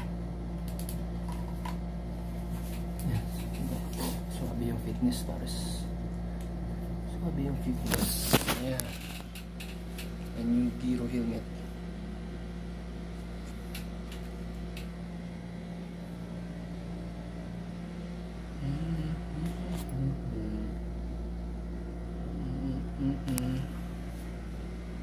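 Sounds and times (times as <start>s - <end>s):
air conditioner humming: 0.0s - 25.0s
low mumbled voice: 18.5s - 20.9s, 22.2s - 23.8s.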